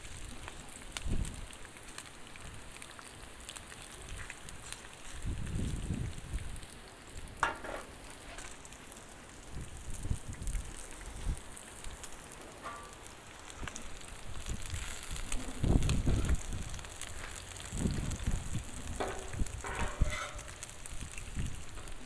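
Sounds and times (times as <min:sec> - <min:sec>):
food sizzling on a griddle: 0:00.0 - 0:22.0
metal spatula scraping and tapping: 0:12.6 - 0:13.0, 0:19.0 - 0:20.6.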